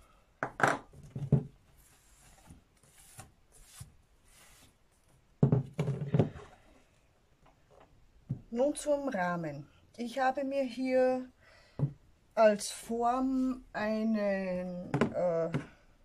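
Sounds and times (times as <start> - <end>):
paper towel brushing table: 1.8 - 4.8.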